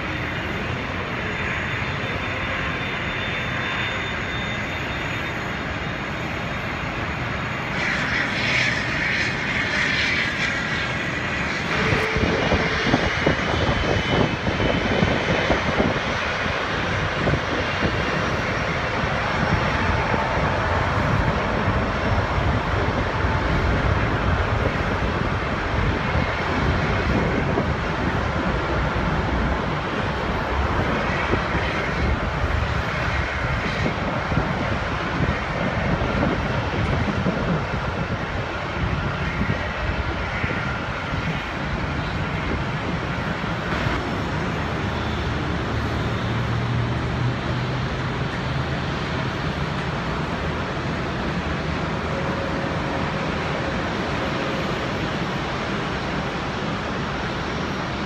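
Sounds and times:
jet engines running: 0.0 - 58.0.

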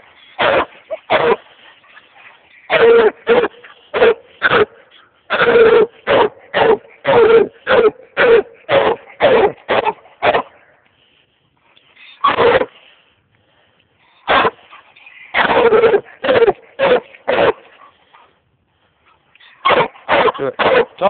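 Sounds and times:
dog barking: 0.4 - 1.4, 2.7 - 4.8, 5.4 - 10.6, 12.2 - 12.7, 14.3 - 14.6, 15.4 - 17.7, 19.6 - 21.0.

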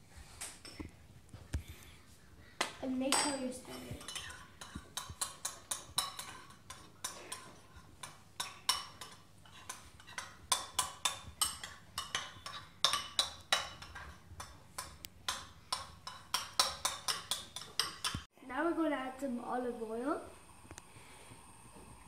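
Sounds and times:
metal spoon clinking in ceramic bowl: 4.0 - 18.2.

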